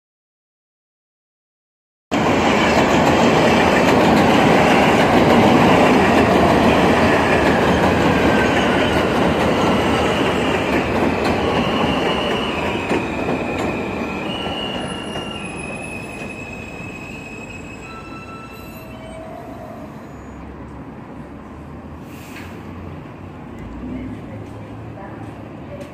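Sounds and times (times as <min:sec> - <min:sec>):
subway train wheels on rail: 0:02.2 - 0:25.9
high wheel squeals: 0:11.3 - 0:20.6.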